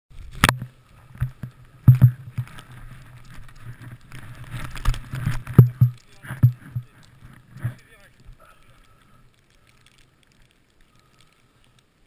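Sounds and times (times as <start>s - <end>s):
skis sliding through snow: 0.2s - 5.4s.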